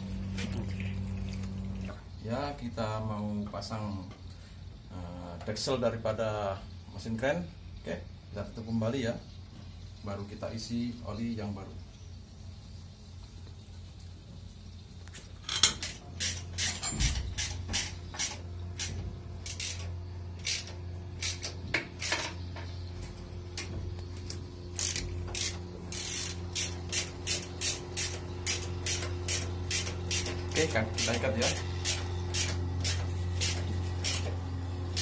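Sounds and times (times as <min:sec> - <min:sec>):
steady low hum: 0:00.0 - 0:35.0
ratchet wrench clicking: 0:15.8 - 0:22.4, 0:24.8 - 0:34.3.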